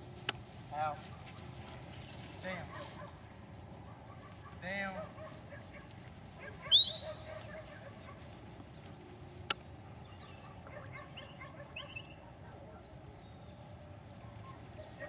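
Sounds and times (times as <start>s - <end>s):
sharply rising whistle: 6.7s - 7.1s.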